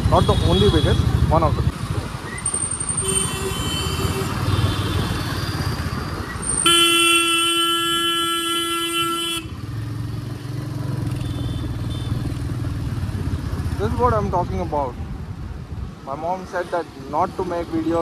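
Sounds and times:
motorcycle road noise: 0:00.0 - 0:18.0
vehicle horn: 0:03.0 - 0:05.1, 0:06.6 - 0:09.6.

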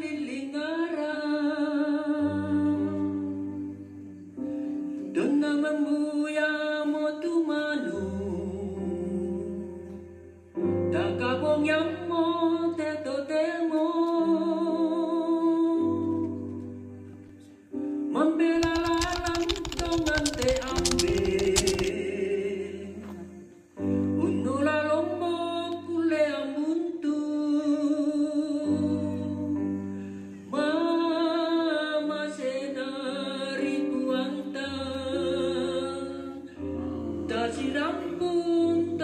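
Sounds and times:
person singing with vibrato: 0:18.2 - 0:39.0
quick rhythmic strokes: 0:18.6 - 0:21.9.

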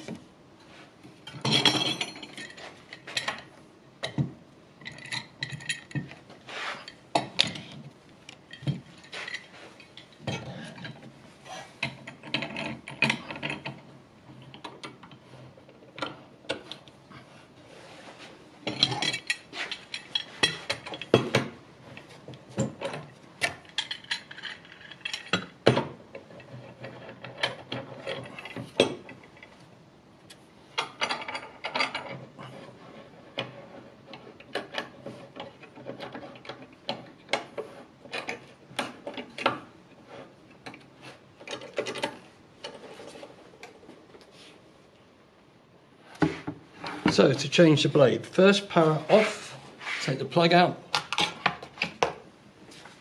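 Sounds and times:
metal clamps clattering on wood: 0:01.2 - 0:07.8, 0:08.4 - 0:11.1, 0:11.7 - 0:13.8, 0:18.6 - 0:29.5.

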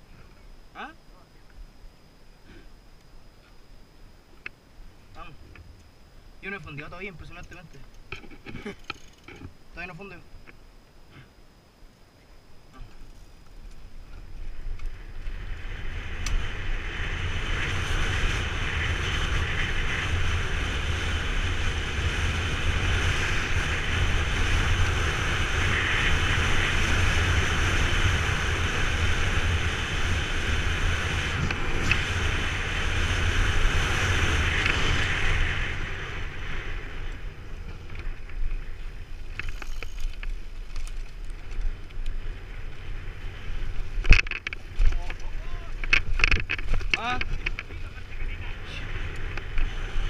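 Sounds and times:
low rumble of bike tyres: 0:03.4 - 0:50.0
wind rushing over microphone: 0:13.9 - 0:50.0.

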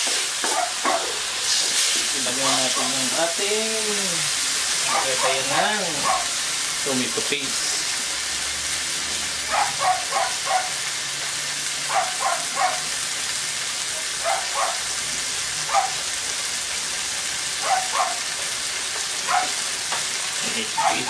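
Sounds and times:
vegetables sizzling in wok: 0:00.0 - 0:21.0
dog barking: 0:00.5 - 0:01.2, 0:04.9 - 0:06.4, 0:09.5 - 0:10.8, 0:11.9 - 0:12.9, 0:14.2 - 0:14.9, 0:15.7 - 0:16.0, 0:17.6 - 0:18.3, 0:19.3 - 0:19.6, 0:20.7 - 0:21.0.

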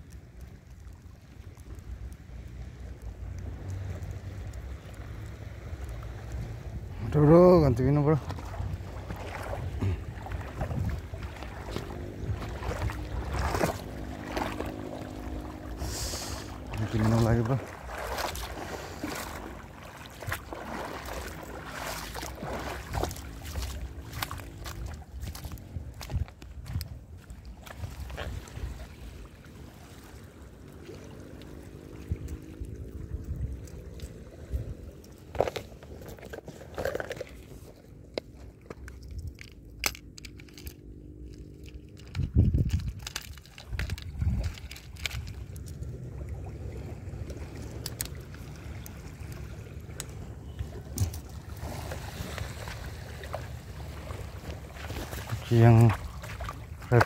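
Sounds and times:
footsteps crunching and splashing: 0:00.0 - 0:57.0
wind on microphone: 0:02.9 - 0:30.0, 0:31.9 - 0:36.7, 0:41.6 - 0:57.0
handling clicks and rustles: 0:34.9 - 0:45.9, 0:47.2 - 0:51.4.

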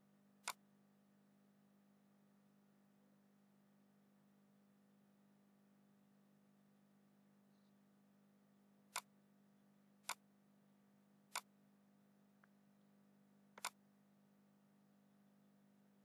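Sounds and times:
faint low hum: 0:00.0 - 0:16.0
mouse button clicking: 0:10.0 - 0:10.2, 0:13.6 - 0:13.8.

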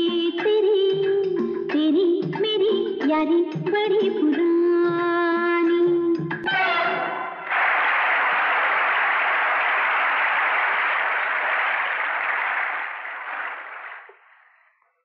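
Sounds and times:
audience applauding: 0:07.4 - 0:14.8.

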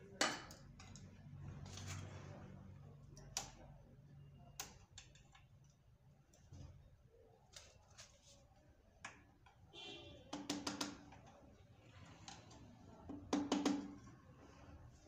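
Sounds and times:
screwdriver tapping on metal: 0:10.3 - 0:11.3.

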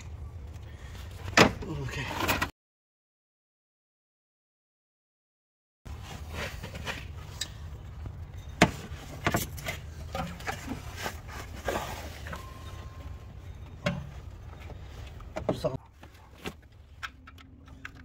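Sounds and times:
clicks and knocks of metal parts: 0:16.5 - 0:18.0.

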